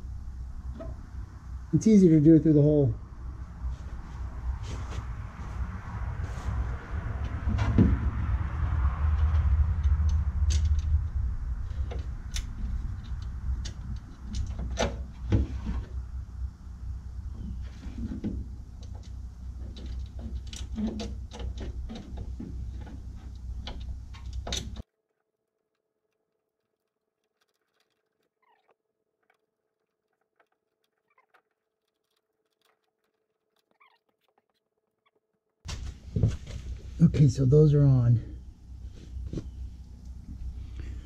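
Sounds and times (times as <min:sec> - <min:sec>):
low rumble: 0:00.0 - 0:19.5.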